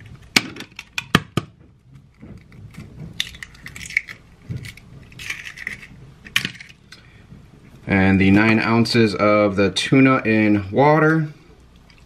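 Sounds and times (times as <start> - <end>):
eggshell crackling: 0.0 - 9.6.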